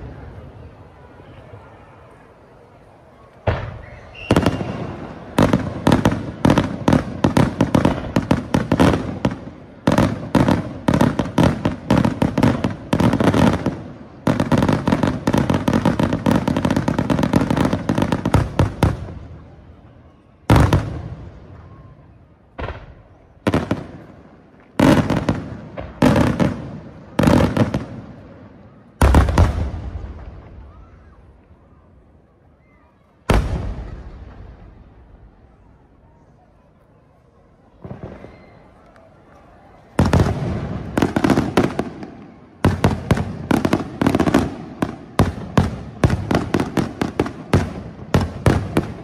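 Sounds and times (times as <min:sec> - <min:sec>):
firework crackling: 0:03.4 - 0:19.5, 0:37.7 - 0:49.0.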